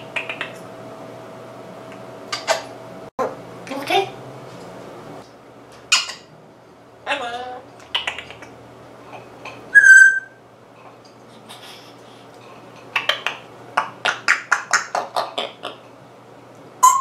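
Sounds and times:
parrot whistling: 0:09.7 - 0:10.4
parrot short sharp calls: 0:09.8 - 0:10.4.

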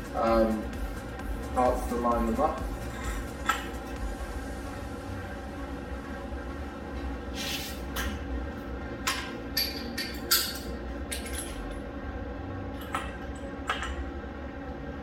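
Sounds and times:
low steady hum: 0:00.0 - 0:15.0
metal parts clinking: 0:09.6 - 0:11.6.

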